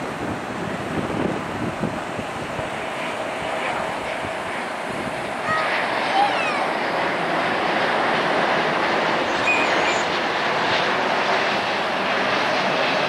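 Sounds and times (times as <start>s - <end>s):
airliner jet noise: 0.0s - 13.0s
faint high chirps: 9.3s - 10.1s.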